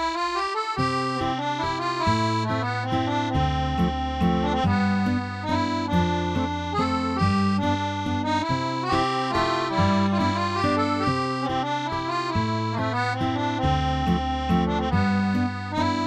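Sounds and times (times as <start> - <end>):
instrumental music with bass line: 0.0 - 16.0.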